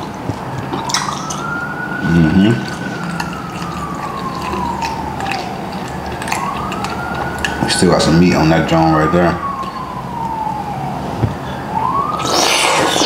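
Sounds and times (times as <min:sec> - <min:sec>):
eating clicks and smacks: 0:00.0 - 0:01.6, 0:02.5 - 0:07.9, 0:09.6 - 0:09.9
siren wailing: 0:00.0 - 0:13.0.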